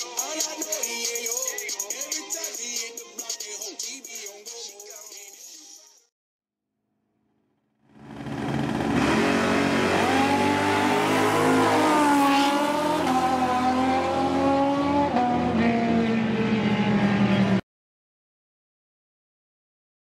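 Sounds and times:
racing car engines revving: 8.0s - 17.6s.

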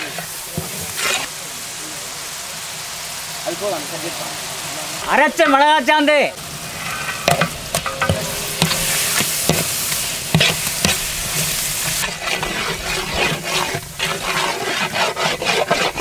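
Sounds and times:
paste sizzling in hot oil: 0.0s - 16.0s
metal ladle scraping a pot: 6.7s - 16.0s.

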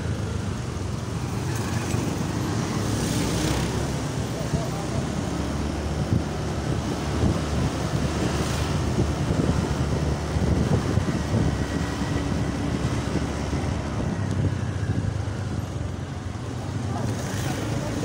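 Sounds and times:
road noise: 0.0s - 18.0s
wind rumbling on microphone: 5.4s - 15.9s.

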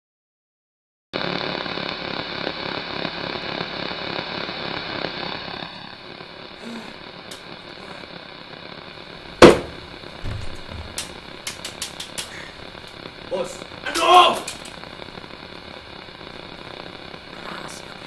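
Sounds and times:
steady background hiss: 3.3s - 18.0s
sharp loud bang: 9.4s - 11.1s.

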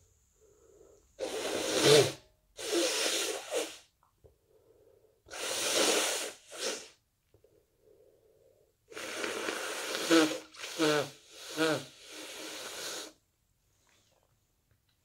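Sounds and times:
congested nasal breathing: 0.4s - 3.9s, 4.5s - 7.0s, 7.8s - 13.2s
person sneezing: 9.0s - 11.9s.

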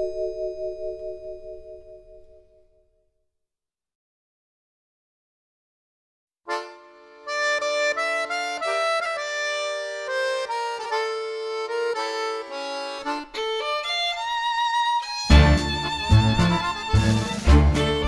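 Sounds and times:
melody over sustained chords: 0.0s - 2.7s.

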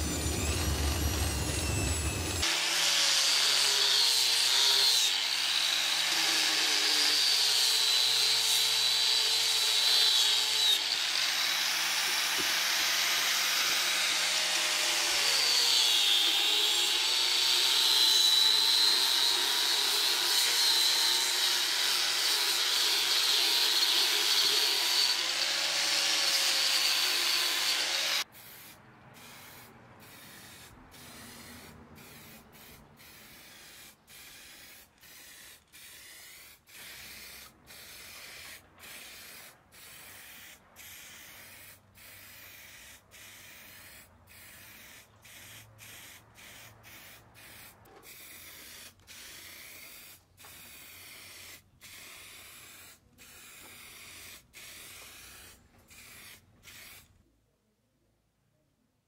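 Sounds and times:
aerosol spray can hissing: 28.4s - 57.1s.

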